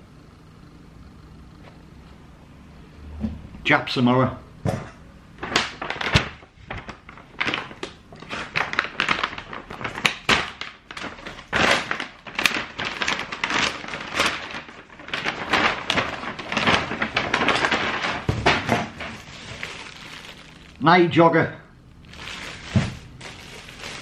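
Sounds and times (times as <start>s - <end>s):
plastic packaging crinkling: 5.4s - 20.8s, 21.9s - 24.0s.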